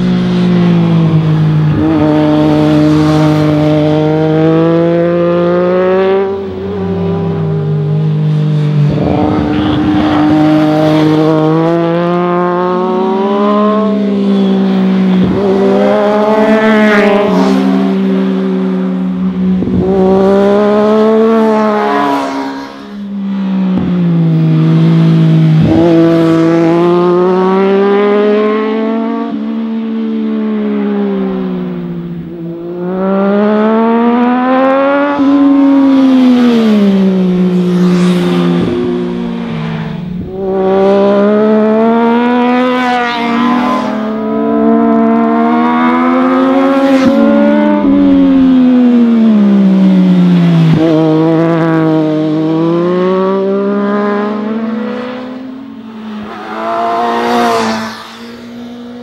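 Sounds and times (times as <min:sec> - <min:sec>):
motorbike engines revving: 0:00.0 - 0:59.0.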